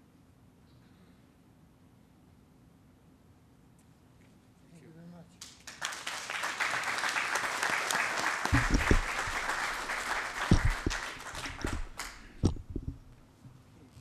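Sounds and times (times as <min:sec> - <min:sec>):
audience applauding: 0:05.4 - 0:12.8
microphone stand thuds: 0:08.5 - 0:13.2.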